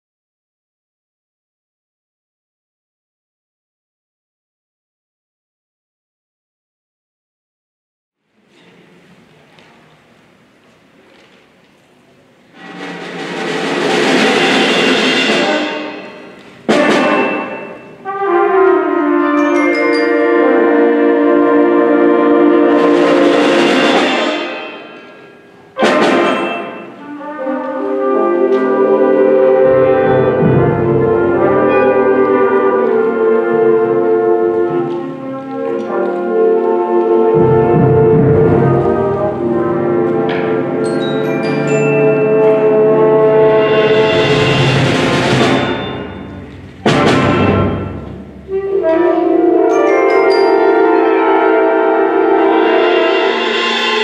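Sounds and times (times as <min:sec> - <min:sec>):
concert band playing: 0:12.6 - 0:54.0
sustained brass chords: 0:12.6 - 0:54.0
bell-like high notes: 0:19.2 - 0:21.4, 0:26.1 - 0:27.0, 0:40.8 - 0:43.4, 0:45.4 - 0:52.7.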